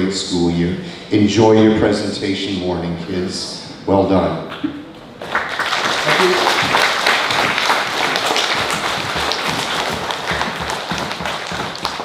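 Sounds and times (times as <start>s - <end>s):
audience applauding: 5.2s - 12.0s
footsteps on wooden stage: 6.3s - 12.0s.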